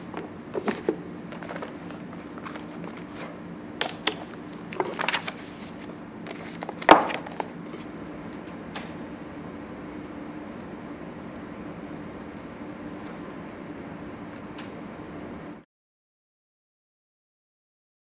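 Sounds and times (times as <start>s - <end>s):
low room hum: 0.0s - 15.6s
book handling clicks and rustles: 0.1s - 7.9s.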